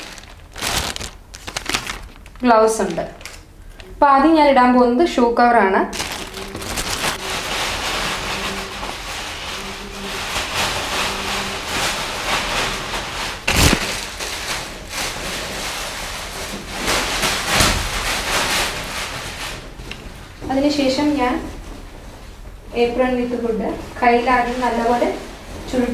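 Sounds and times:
plastic shoe covers crinkling: 0.0 - 3.8, 5.9 - 19.7.

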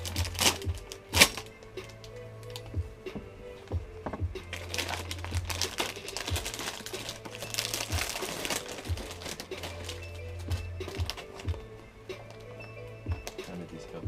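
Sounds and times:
plastic packaging crinkling: 0.0 - 2.7, 4.5 - 12.6.

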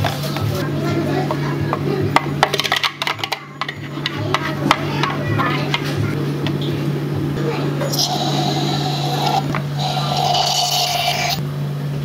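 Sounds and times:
steady low hum: 0.0 - 12.0
utensils clicking and tapping: 1.2 - 6.6.

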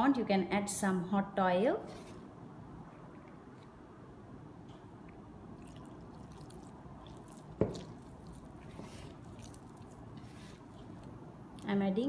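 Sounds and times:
dough squishing and crumbling: 5.6 - 11.8.

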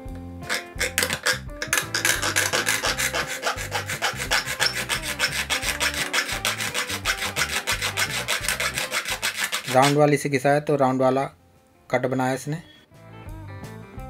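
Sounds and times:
needle file rasping on metal: 0.5 - 10.0.

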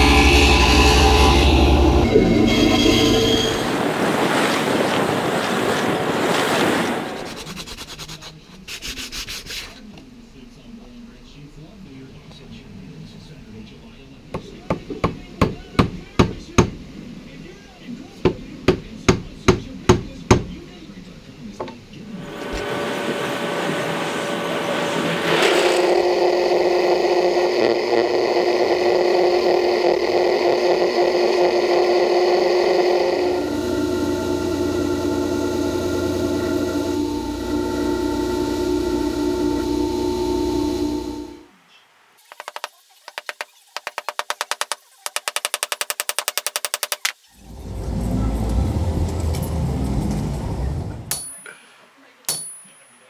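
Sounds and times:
belt sander whine: 0.0 - 7.7, 22.1 - 41.5, 46.5 - 51.1
wash of noise: 0.0 - 7.8, 22.1 - 41.4, 47.4 - 51.1
wind noise on microphone: 3.5 - 7.4
sandpaper rubbing on wood: 7.2 - 9.9.

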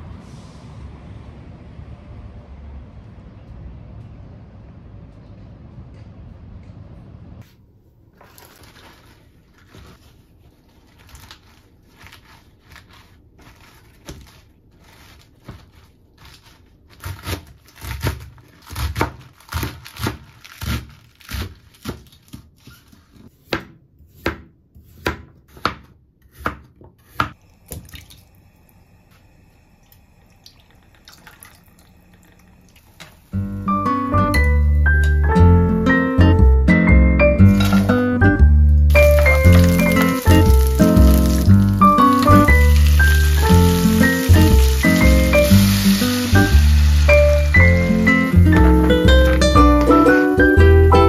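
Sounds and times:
knife chopping on plastic board: 16.2 - 22.5, 23.3 - 27.4.

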